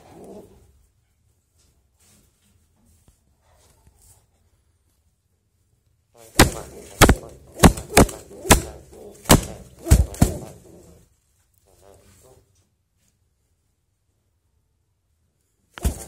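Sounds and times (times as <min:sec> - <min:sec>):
pigeon wing slaps: 0:06.4 - 0:10.6, 0:15.8 - 0:16.0.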